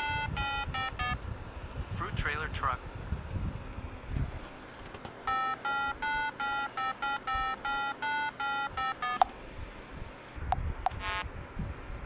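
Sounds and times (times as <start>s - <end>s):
electronic beeping jingle: 0.0s - 1.2s, 5.3s - 9.3s.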